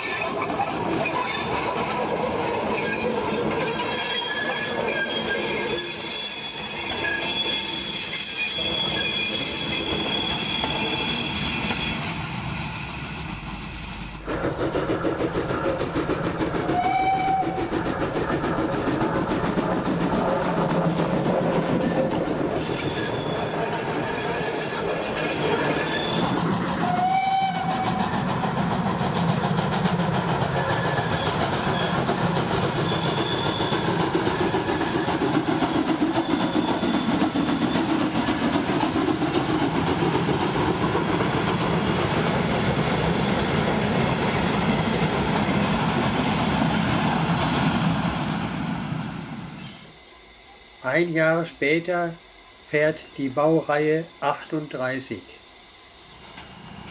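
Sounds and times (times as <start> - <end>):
train wheels clattering on rails: 0.0 - 5.5, 13.2 - 48.7.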